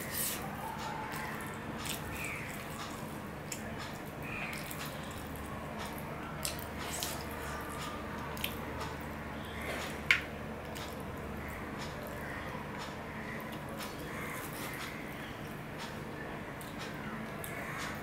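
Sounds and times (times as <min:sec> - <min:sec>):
chewing and mouth clicks: 0:00.2 - 0:09.0.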